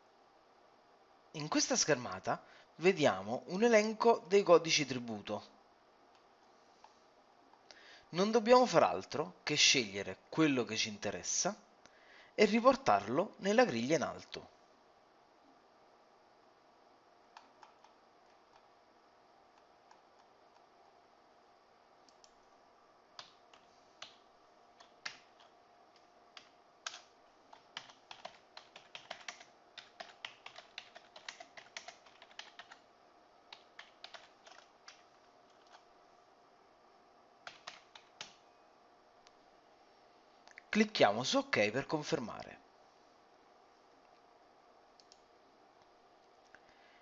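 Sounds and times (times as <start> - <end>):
faint steady hum: 0.0 - 47.0
keyboard typing and clicks: 17.4 - 18.7, 23.2 - 24.2, 24.8 - 32.8, 33.5 - 35.8, 37.4 - 38.4.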